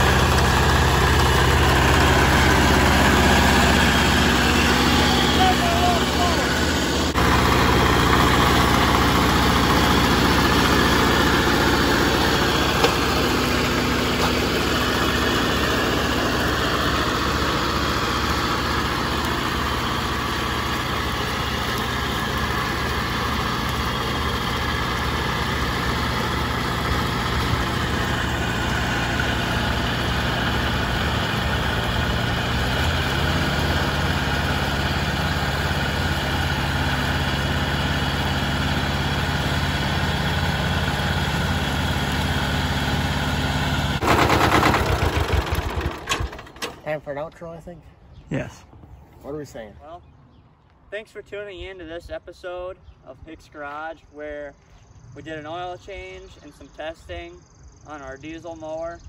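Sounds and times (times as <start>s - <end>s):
mower cutting tall grass: 0.0s - 46.6s
tractor diesel engine running: 0.0s - 47.3s.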